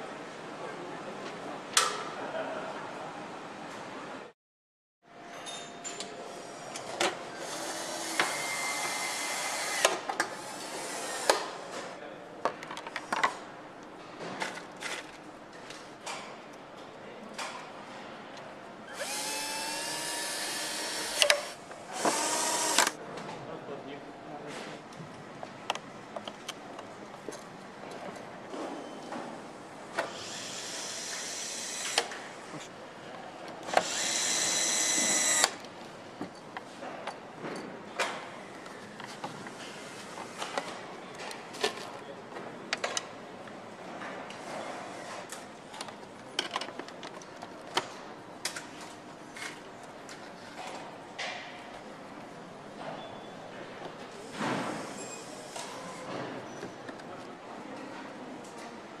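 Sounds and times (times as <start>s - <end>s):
electric screwdriver whining: 18.9s - 23.0s, 30.2s - 32.1s, 33.8s - 35.6s
clicks and knocks of tools: 45.3s - 51.5s.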